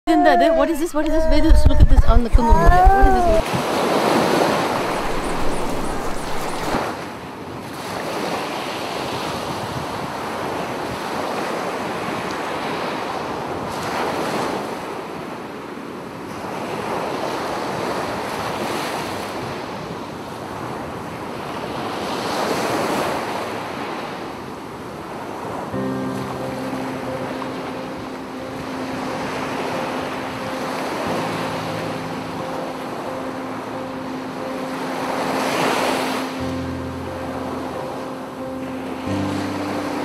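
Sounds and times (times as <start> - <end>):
wind on microphone: 0.5 - 8.2, 8.9 - 12.4
surf washing onto beach: 1.4 - 15.6, 16.2 - 40.0.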